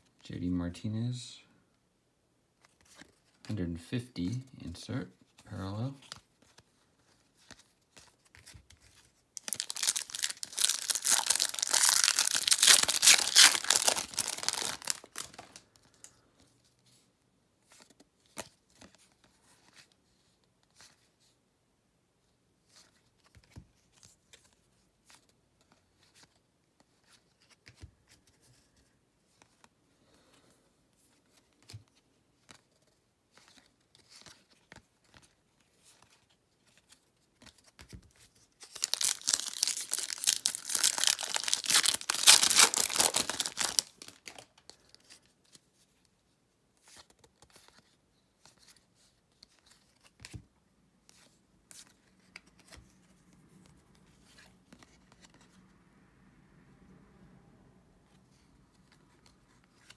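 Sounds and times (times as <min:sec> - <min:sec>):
trading cards flipped through: 0:06.0 - 0:16.1
wrapper tearing and crinkling: 0:09.4 - 0:15.6, 0:38.6 - 0:44.5.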